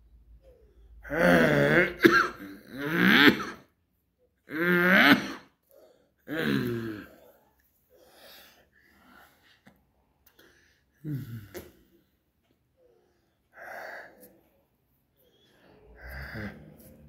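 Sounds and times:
man coughing: 0:01.1 - 0:03.7
man breathing: 0:07.0 - 0:12.2.

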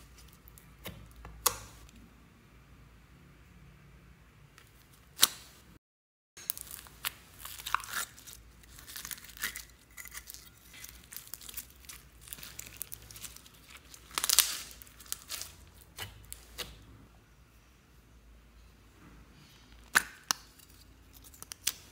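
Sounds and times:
foam beads crackling in slime: 0:06.4 - 0:16.5
plastic crinkling: 0:06.4 - 0:16.6.

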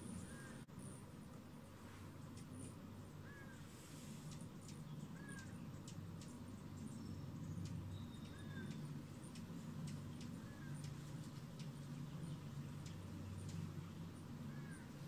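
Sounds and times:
hummingbird chirps: 0:00.0 - 0:15.0
hummingbird wings humming: 0:00.0 - 0:15.0
faint ticks: 0:02.3 - 0:02.8, 0:04.0 - 0:06.9, 0:07.6 - 0:13.8.

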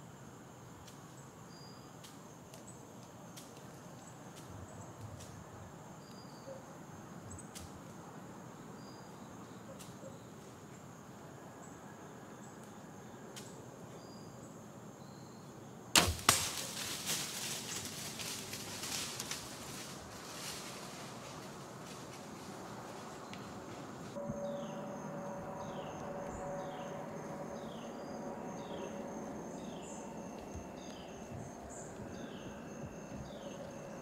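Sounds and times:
sharp crack: 0:16.0 - 0:17.7
deer crashing through dry leaves: 0:16.0 - 0:24.0.

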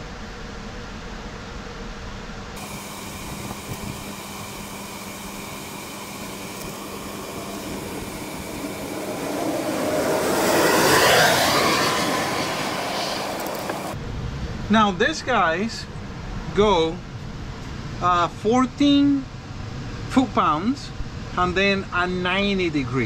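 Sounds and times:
steady background hum: 0:00.0 - 0:23.0
vehicle passing by: 0:06.7 - 0:14.7.

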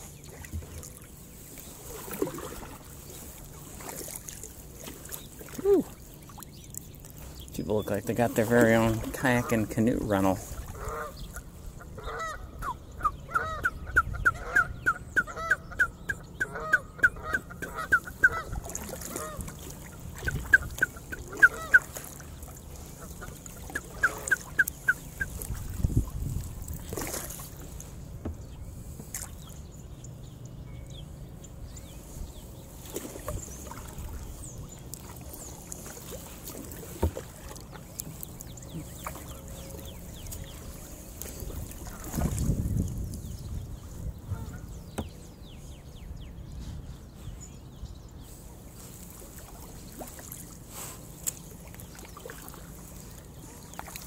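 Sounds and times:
goose honking: 0:10.7 - 0:11.2, 0:11.9 - 0:19.5, 0:20.6 - 0:22.0.

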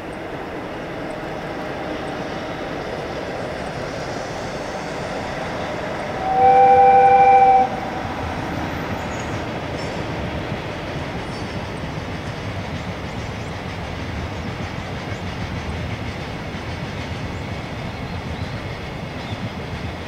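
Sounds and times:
freight train rolling: 0:00.0 - 0:20.0
two-note air horn blast: 0:06.0 - 0:08.6.

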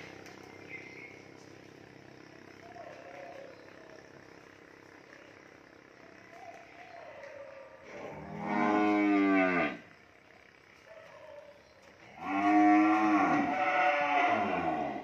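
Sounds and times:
cattle mooing: 0:07.9 - 0:09.9, 0:12.2 - 0:15.0.

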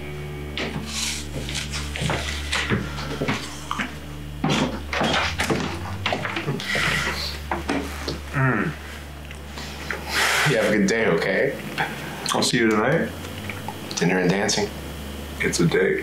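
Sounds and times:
low electrical hum: 0:00.0 - 0:16.0
footsteps: 0:00.6 - 0:10.1.

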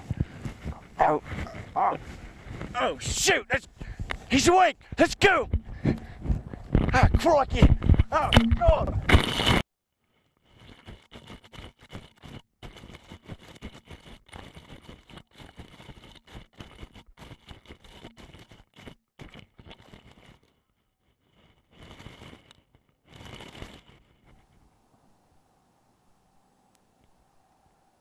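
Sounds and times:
people running through dry grass: 0:00.0 - 0:02.9.

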